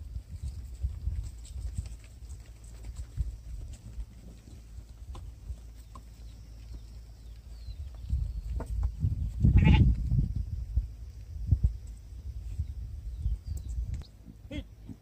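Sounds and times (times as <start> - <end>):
goat hooves clicking: 0.2 - 9.0
goat bleating: 9.5 - 9.9, 14.4 - 14.8.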